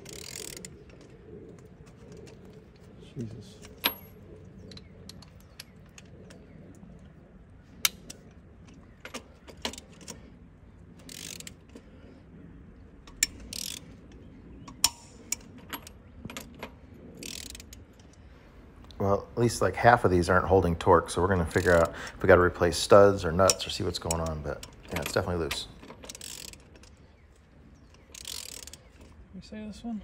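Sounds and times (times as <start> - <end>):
wrench ratcheting: 0.0 - 1.0, 11.0 - 11.8, 13.1 - 13.9, 17.2 - 18.2, 23.4 - 27.0, 27.9 - 29.1
torque wrench metal clicks: 11.0 - 11.6, 13.1 - 13.9, 17.2 - 18.2, 23.4 - 27.0, 27.9 - 29.1.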